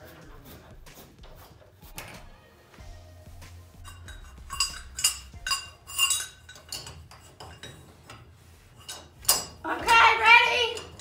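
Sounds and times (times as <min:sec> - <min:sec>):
wrench clinking on metal: 0:03.8 - 0:11.0.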